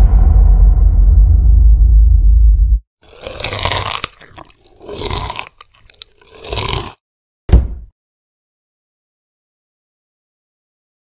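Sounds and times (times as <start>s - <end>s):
loud thump: 0.0s - 2.8s, 7.5s - 7.9s
monster chewing crunching bites: 3.0s - 7.0s.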